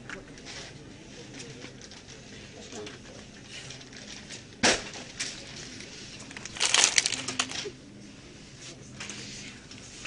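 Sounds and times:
crackling and rattling: 0:03.7 - 0:07.7.

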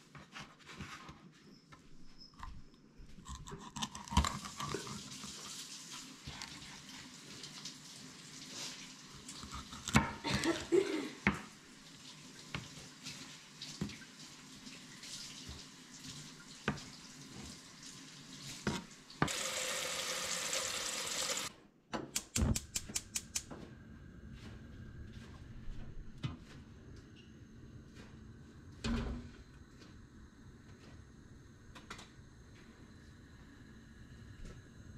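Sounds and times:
tap running: 0:18.7 - 0:21.5
gas burner igniter clicking: 0:22.1 - 0:23.5.

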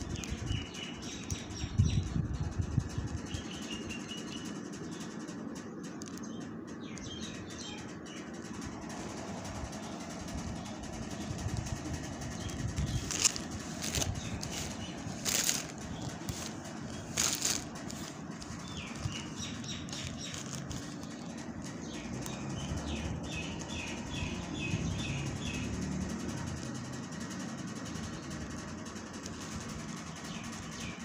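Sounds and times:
cloth rustling: 0:13.0 - 0:21.2.

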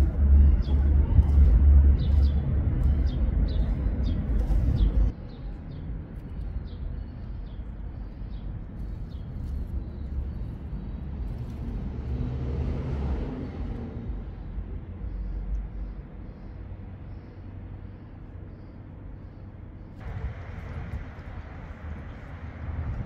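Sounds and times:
heavy low rumble: 0:00.0 - 0:08.0, 0:19.8 - 0:23.0.

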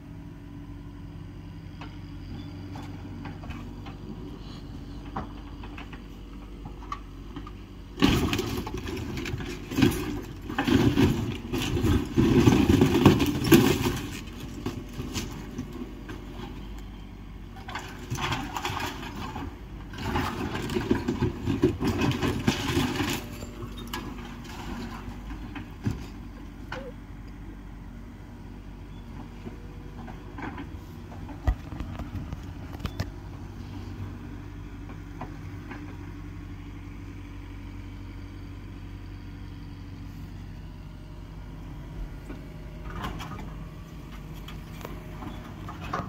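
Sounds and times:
excavator engine running: 0:00.0 - 0:46.0
debris crashing and crunching: 0:08.0 - 0:16.6, 0:17.6 - 0:26.1.

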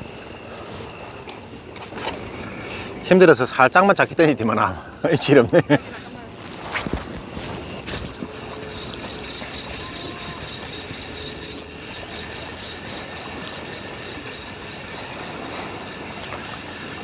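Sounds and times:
fishing reel ticking: 0:05.4 - 0:17.0.

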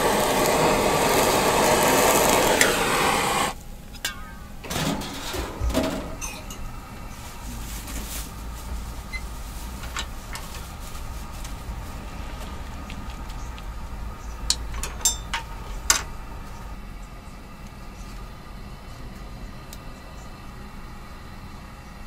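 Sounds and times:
noodle boiler rumble and hiss: 0:00.0 - 0:22.0
metallic clinks of lid and utensils: 0:14.8 - 0:16.1.

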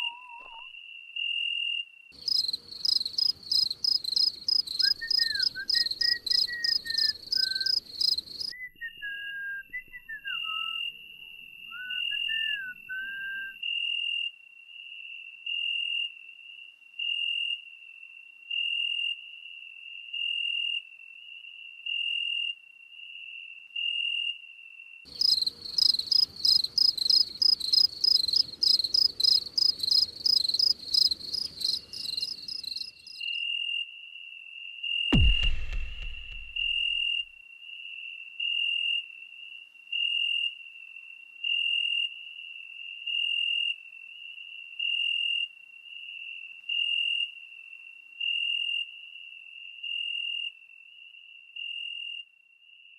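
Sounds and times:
rapid high cricket chirps: 0:02.2 - 0:08.5, 0:19.6 - 0:33.6, 0:34.2 - 0:52.7.

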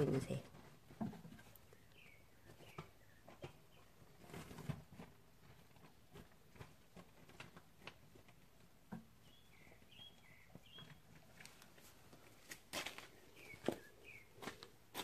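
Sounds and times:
small bird chirping: 0:01.4 - 0:04.3, 0:09.2 - 0:11.2, 0:13.2 - 0:14.7.

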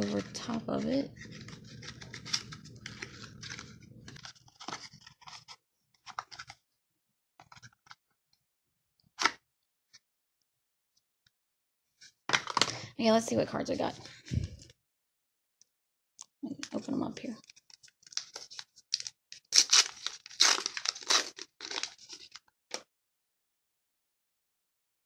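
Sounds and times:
paper sleeve scraping cardboard: 0:00.0 - 0:05.6.

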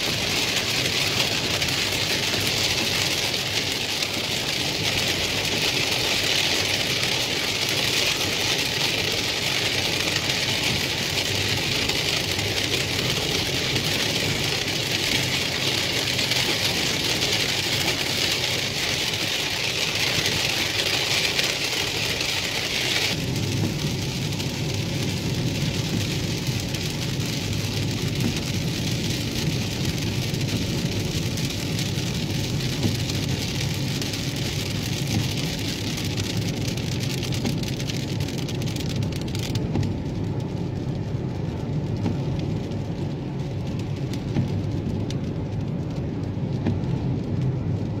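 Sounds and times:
rain on car: 0:00.0 - 0:48.0
road rumble in car cabin: 0:00.0 - 0:48.0
tyres hissing on wet pavement: 0:00.0 - 0:48.0.

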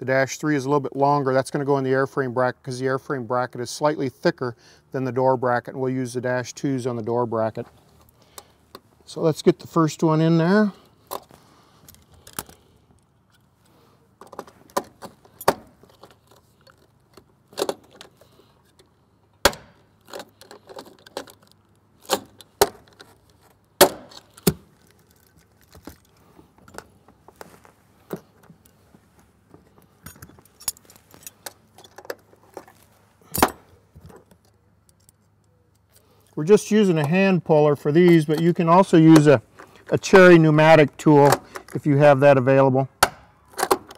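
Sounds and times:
metallic clicks and rattles: 0:11.1 - 0:13.5, 0:19.9 - 0:23.4.

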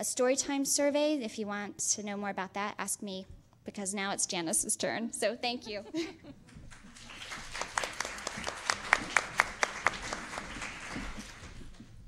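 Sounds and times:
audience applauding: 0:06.5 - 0:12.0
loud claps close by: 0:06.6 - 0:11.8.

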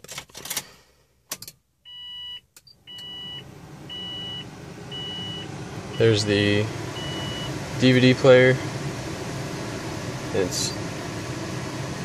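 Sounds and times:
car engine starting and running: 0:00.1 - 0:12.0
warning chime beeping: 0:07.0 - 0:07.5.

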